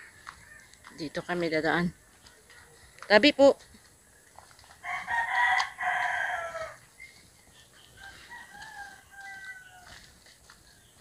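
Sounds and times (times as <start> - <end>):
rooster crowing: 4.8 - 6.9, 8.0 - 10.1.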